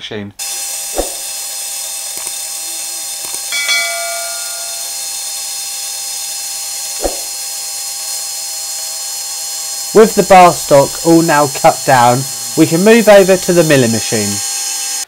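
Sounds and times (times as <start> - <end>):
bandsaw cutting metal: 0.4 - 15.0
click and bell-like chime: 3.3 - 5.0.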